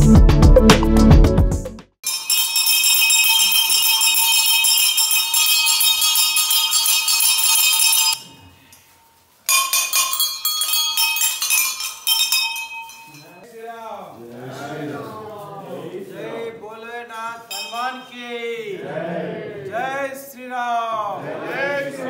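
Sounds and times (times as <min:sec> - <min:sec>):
background music: 0:00.0 - 0:01.9
temple bells jingling: 0:02.0 - 0:08.6, 0:09.5 - 0:13.5, 0:17.4 - 0:18.5.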